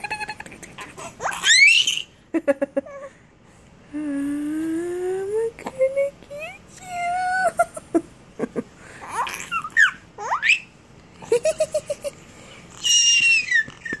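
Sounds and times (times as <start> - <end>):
baby cooing and squealing: 1.0 - 2.1, 9.0 - 10.7, 12.7 - 14.0
baby giggling: 7.4 - 10.6, 11.2 - 14.0.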